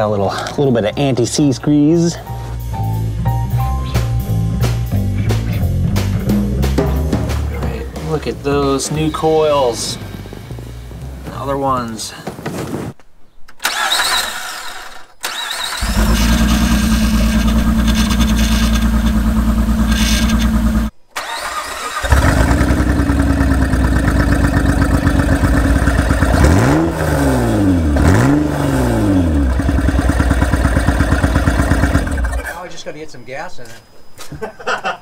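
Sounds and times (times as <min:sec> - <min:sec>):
car engine revving without exhaust: 0:15.6 - 0:21.0, 0:22.0 - 0:32.5.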